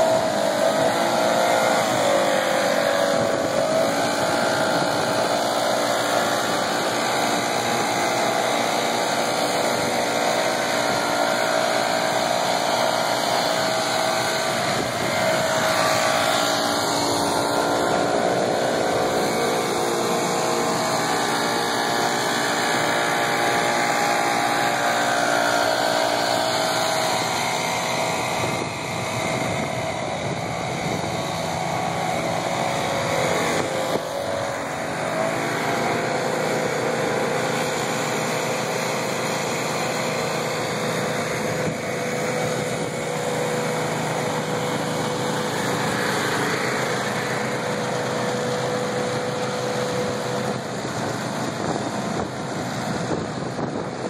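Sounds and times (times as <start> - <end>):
small petrol engines running: 0.0 - 54.0.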